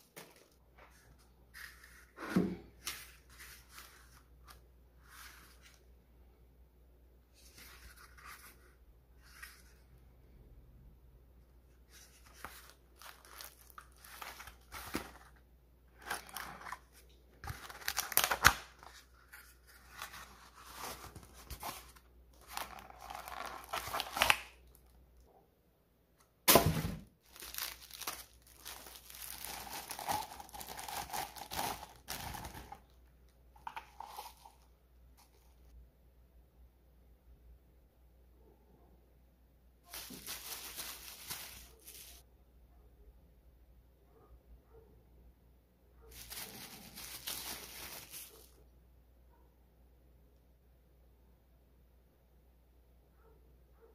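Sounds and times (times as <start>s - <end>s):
plastic and bubble wrap crinkling: 11.9s - 15.4s, 16.0s - 24.9s, 27.2s - 32.9s, 39.9s - 42.2s, 46.1s - 48.6s.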